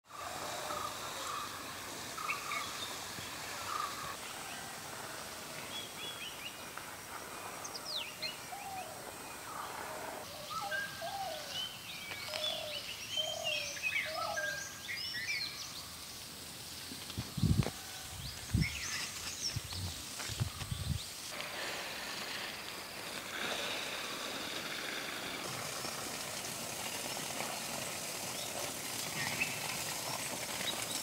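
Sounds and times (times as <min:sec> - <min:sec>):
outdoor background hiss: 0:00.0 - 0:31.0
birds chirping and singing: 0:07.6 - 0:16.0.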